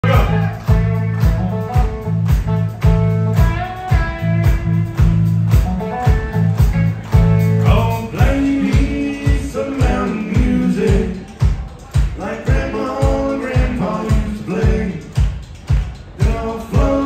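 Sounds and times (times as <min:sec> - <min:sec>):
heavy bass notes: 0:00.0 - 0:11.6
live country band: 0:00.0 - 0:17.0
steady drum beat: 0:00.0 - 0:17.0.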